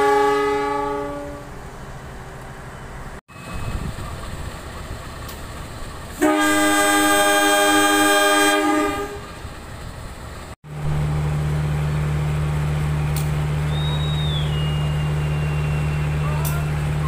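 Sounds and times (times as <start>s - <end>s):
locomotive air horn blast: 0.0s - 1.7s, 6.2s - 9.4s
low rumble: 2.1s - 6.1s.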